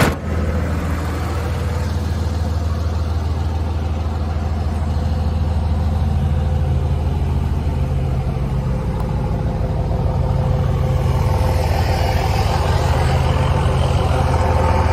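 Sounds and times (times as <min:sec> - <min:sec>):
pickup truck engine idling: 0:00.0 - 0:14.9.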